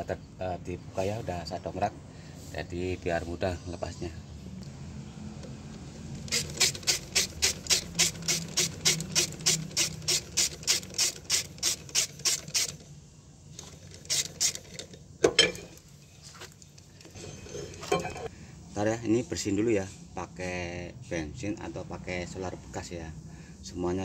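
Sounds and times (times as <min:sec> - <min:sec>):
ratchet wrench clicking: 0:06.2 - 0:12.8, 0:13.9 - 0:14.8.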